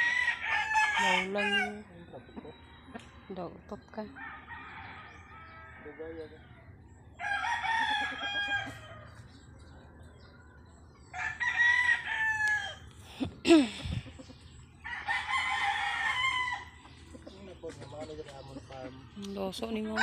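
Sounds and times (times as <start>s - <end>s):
rooster crowing: 0.0s - 1.8s, 2.4s - 6.4s, 7.2s - 9.2s, 11.1s - 12.8s, 14.8s - 16.8s.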